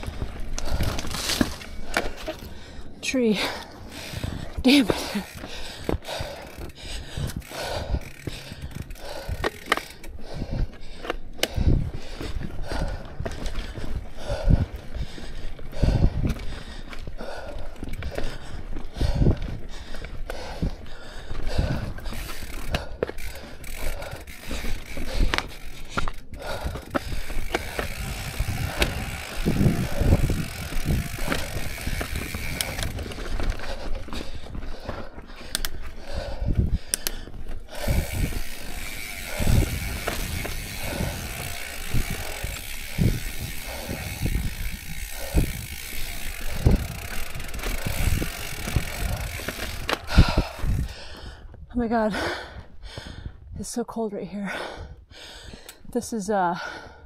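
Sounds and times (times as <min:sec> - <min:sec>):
bike knocking over rocks: 0:00.0 - 0:02.6, 0:21.9 - 0:35.1, 0:37.9 - 0:50.9
freewheel ratchet buzzing: 0:03.8 - 0:10.6, 0:21.5 - 0:33.7, 0:37.7 - 0:50.9.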